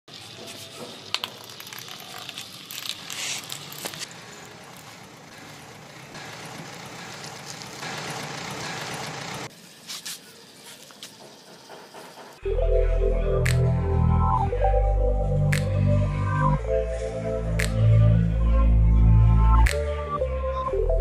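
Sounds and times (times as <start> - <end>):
plastic wheels scraping on concrete: 0.1 - 5.2
toy electric motors running: 0.1 - 12.2.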